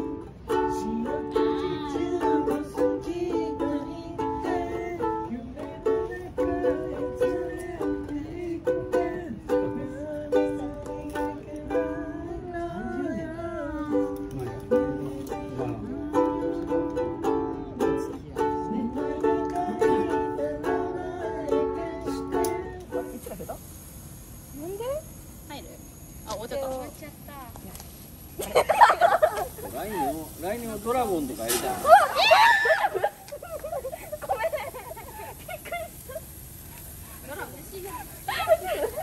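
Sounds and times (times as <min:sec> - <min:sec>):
plucked string melody: 0:00.0 - 0:23.1.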